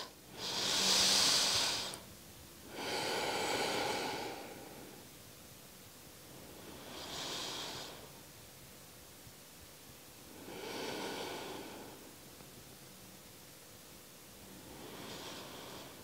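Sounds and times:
woman breathing through nose: 0:00.0 - 0:05.1, 0:06.4 - 0:08.2, 0:10.3 - 0:12.2, 0:14.6 - 0:16.0.

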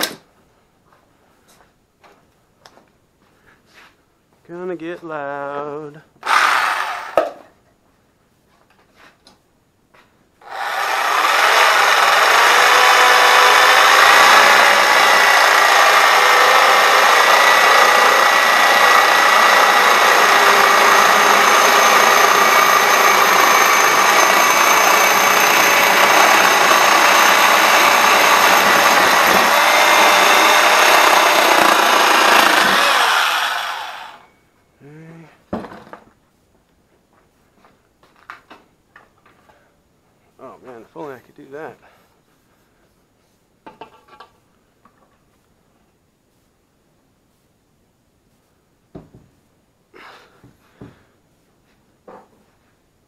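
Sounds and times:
reciprocating saw cutting metal pipe: 0:10.4 - 0:34.3.

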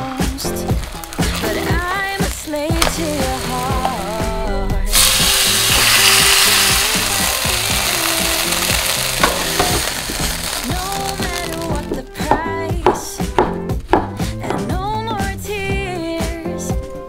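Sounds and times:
chicken sizzling in a frying pan: 0:00.0 - 0:04.3, 0:04.9 - 0:11.9
background music: 0:00.0 - 0:17.0.

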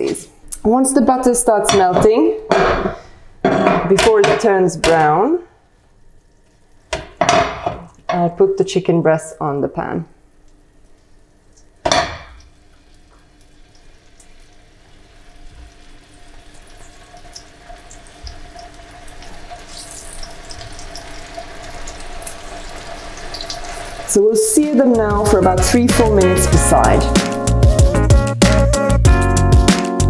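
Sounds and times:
chicken sizzling in a pan: 0:11.7 - 0:26.1.

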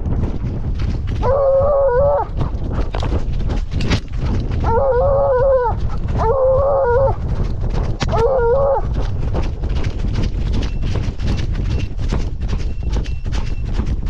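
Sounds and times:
running feet thumping: 0:00.0 - 0:14.0
hound baying: 0:01.2 - 0:02.6, 0:04.5 - 0:07.4, 0:08.0 - 0:09.1.

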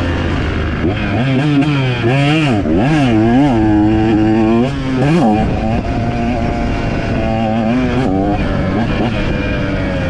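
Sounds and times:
dirt bike engine revving: 0:00.0 - 0:10.0.

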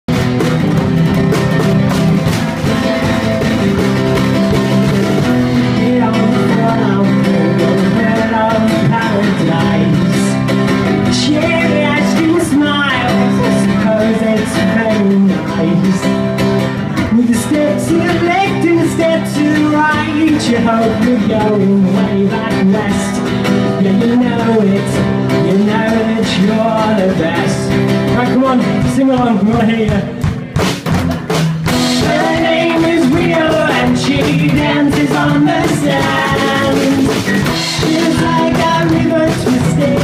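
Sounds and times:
drum kit with cymbals: 0:00.1 - 0:14.0, 0:27.1 - 0:40.0
acoustic guitar strummed: 0:00.1 - 0:40.0
person singing: 0:05.2 - 0:16.3, 0:17.0 - 0:30.3, 0:31.7 - 0:40.0.

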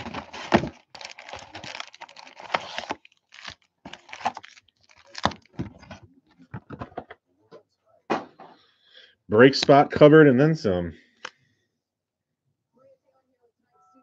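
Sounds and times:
cardboard box crackling and rustling: 0:00.0 - 0:06.0.

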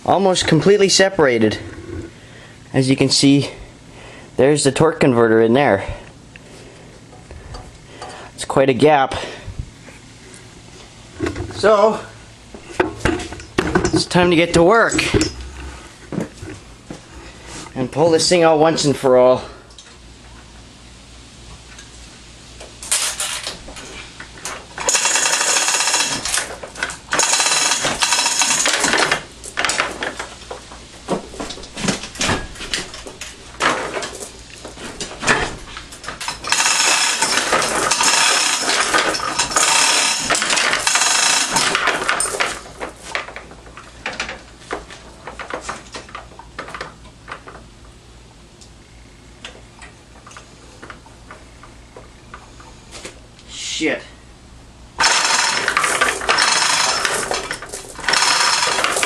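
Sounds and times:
metal rattling and clinking: 0:24.5 - 0:30.2, 0:31.5 - 0:44.4, 0:55.0 - 0:59.0.

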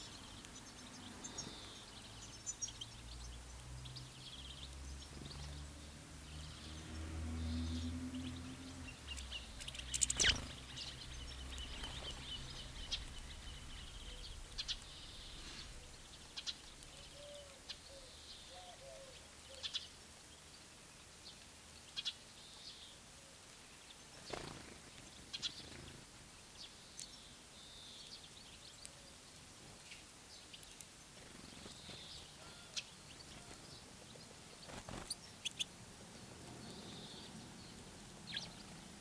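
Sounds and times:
small birds chirping: 0:00.0 - 0:39.0
thin trilling bird call: 0:09.2 - 0:10.6.

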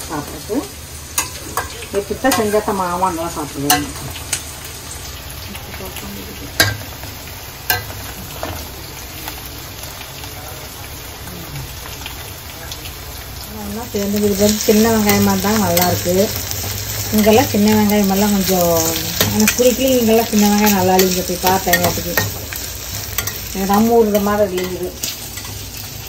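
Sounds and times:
frying sizzle: 0:00.0 - 0:26.0
metal spoon stirring in pan: 0:07.7 - 0:08.6, 0:14.0 - 0:26.0
spoon clicking against pan: 0:21.0 - 0:23.5.

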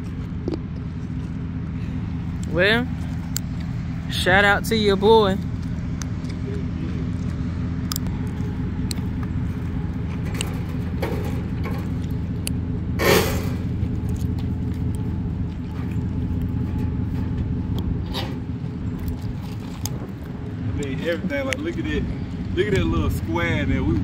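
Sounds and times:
engine idling: 0:00.0 - 0:24.0
metal fender scraping: 0:09.1 - 0:20.4.

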